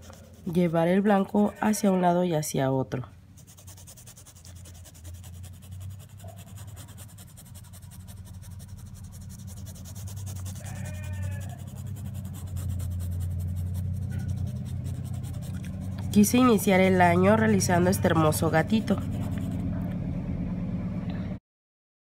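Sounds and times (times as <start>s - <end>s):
paintbrush scrubbing on cloth: 0.0s - 0.9s, 3.4s - 16.7s, 18.2s - 19.7s
animal call: 10.2s - 12.1s
low hum: 11.4s - 21.4s.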